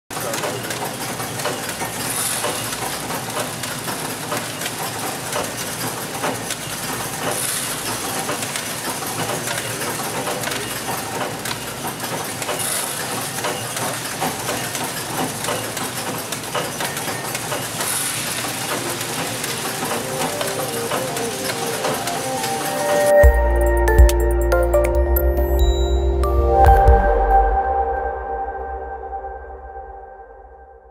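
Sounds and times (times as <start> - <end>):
machine clatter with rapid clicks: 0.1 - 23.0.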